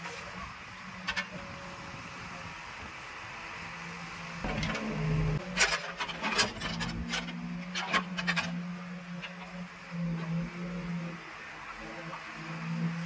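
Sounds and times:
diesel engine running: 0.0 - 13.0
bucket scraping earth and stones: 4.4 - 9.6.

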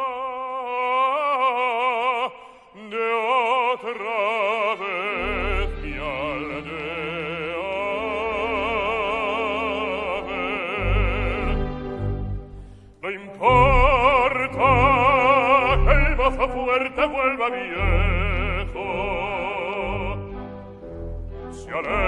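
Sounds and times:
baritone singing with vibrato: 0.0 - 12.1, 13.0 - 22.0
low instrumental accompaniment: 17.7 - 22.0.

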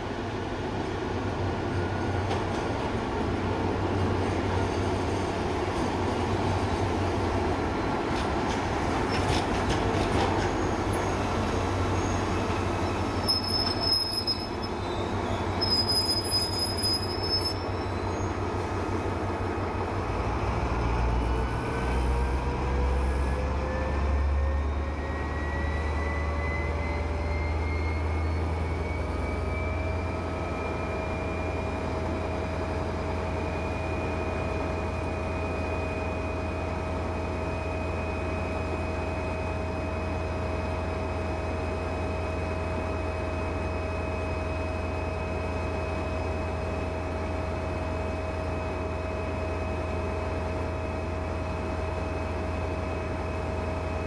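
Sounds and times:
train brakes squealing: 4.1 - 5.6, 10.2 - 18.7, 23.0 - 41.0.

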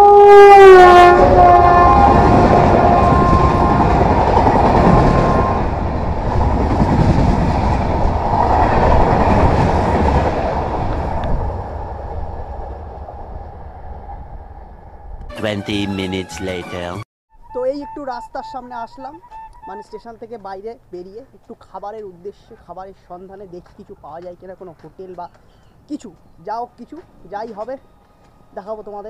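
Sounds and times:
train passing at speed: 0.4 - 15.2.

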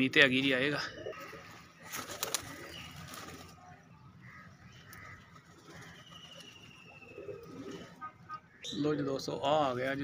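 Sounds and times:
pigeons cooing: 0.8 - 3.4, 4.9 - 8.0
pigeon wing flaps: 1.9 - 3.5.

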